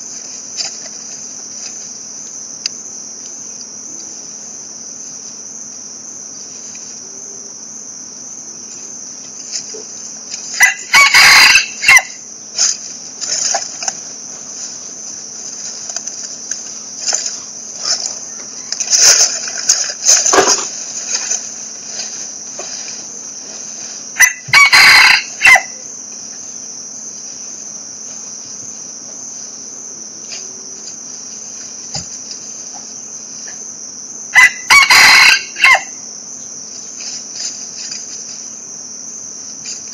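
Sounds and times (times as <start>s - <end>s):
insects buzzing: 0.0s - 39.9s
rooster crowing: 10.5s - 12.2s, 18.1s - 19.4s, 24.1s - 26.0s, 34.3s - 36.1s.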